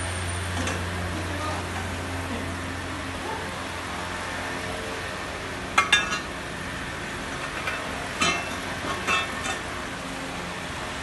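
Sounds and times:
workshop hum: 0:00.0 - 0:11.0
steel tubes clinking: 0:05.8 - 0:06.4, 0:07.4 - 0:09.7.

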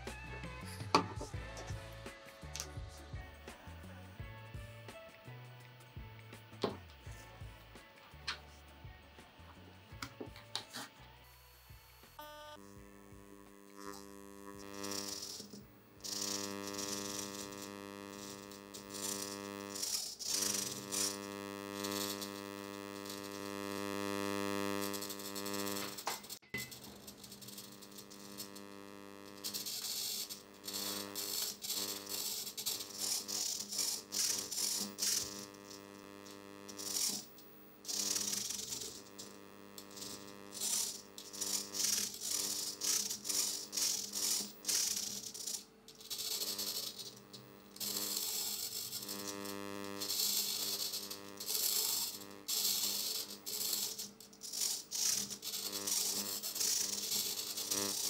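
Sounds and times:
servos whirring: 0:12.2 - 0:58.0.

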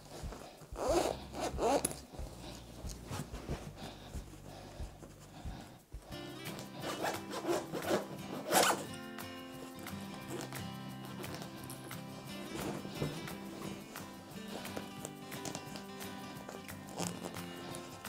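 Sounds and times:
zipper being pulled: 0:00.0 - 0:03.7, 0:06.5 - 0:08.9, 0:16.9 - 0:18.0
fabric rubbing: 0:00.0 - 0:08.9
background music: 0:00.0 - 0:18.0.

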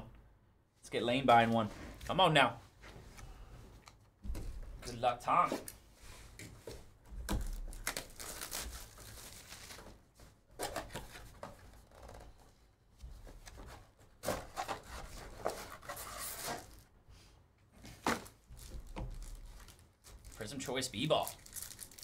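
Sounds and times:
cardboard scratching and rustling: 0:13.4 - 0:16.8
cardboard tearing: 0:14.2 - 0:16.8.

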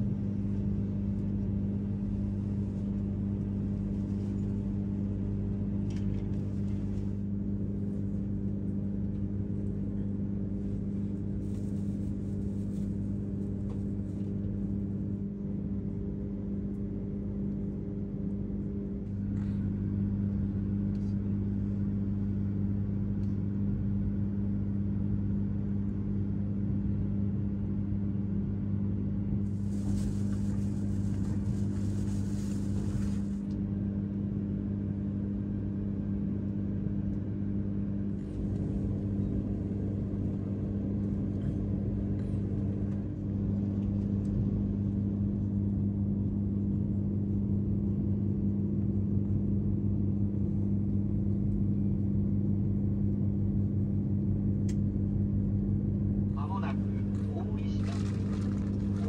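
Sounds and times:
train running hum: 0:29.4 - 0:33.6.

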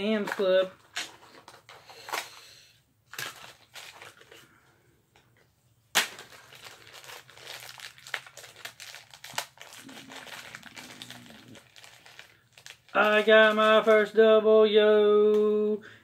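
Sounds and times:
plastic packaging crinkling: 0:03.1 - 0:04.6, 0:05.9 - 0:14.2.

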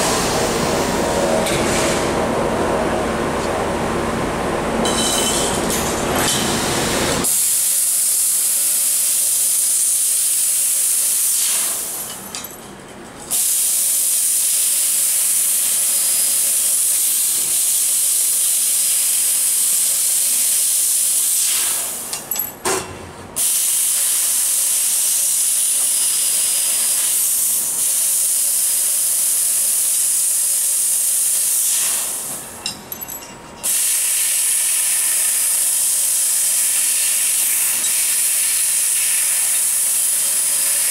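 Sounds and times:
laser cutter gas hissing: 0:07.2 - 0:12.0, 0:13.3 - 0:22.1, 0:23.4 - 0:32.4, 0:33.7 - 0:40.9.

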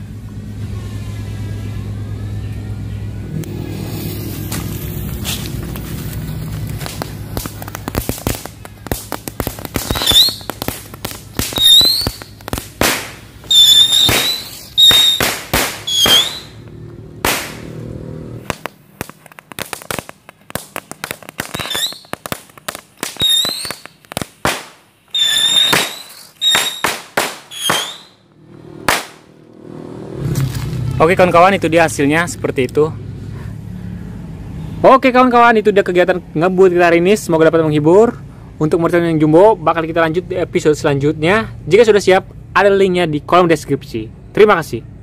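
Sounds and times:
firework whistles: 0:03.6 - 0:05.4, 0:08.2 - 0:16.6, 0:21.4 - 0:22.4, 0:23.0 - 0:28.3
firework bangs and crackling pops: 0:03.9 - 0:16.6, 0:17.2 - 0:17.8, 0:18.4 - 0:28.2, 0:28.8 - 0:29.3.

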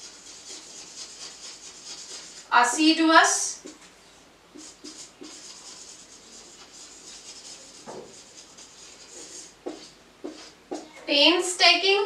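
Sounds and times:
marker writing on whiteboard: 0:00.0 - 0:02.5, 0:03.3 - 0:03.9, 0:04.5 - 0:11.0.

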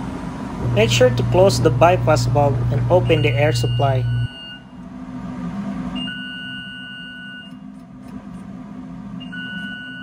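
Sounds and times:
louder low hum: 0:00.0 - 0:06.8
steady low hum: 0:00.0 - 0:10.0
long even beep tone: 0:02.9 - 0:04.7, 0:06.0 - 0:07.6, 0:09.2 - 0:10.0.

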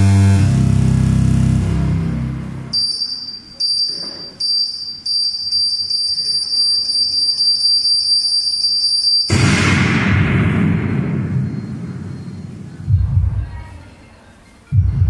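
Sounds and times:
high-pitched electronic beeps: 0:02.7 - 0:09.4, 0:11.2 - 0:13.4
explosion sound effect: 0:09.3 - 0:13.5.

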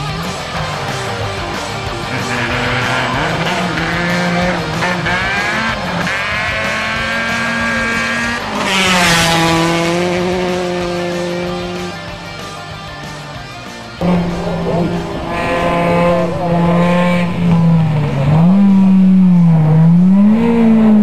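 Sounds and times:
rally car engine revving: 0:00.0 - 0:21.0.

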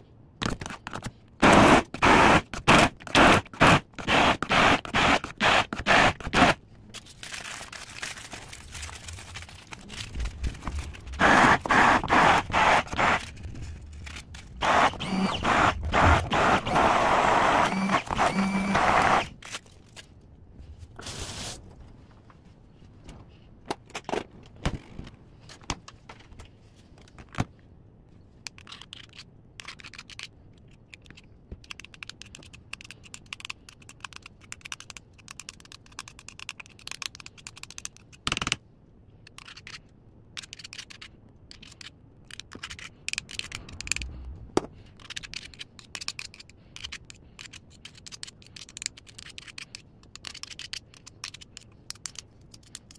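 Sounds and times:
hand blender motor running: 0:14.6 - 0:19.3.

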